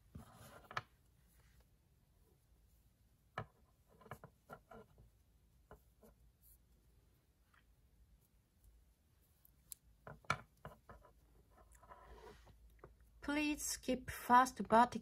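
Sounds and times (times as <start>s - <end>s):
crochet hook clicks and yarn rustles: 8.6s - 11.9s.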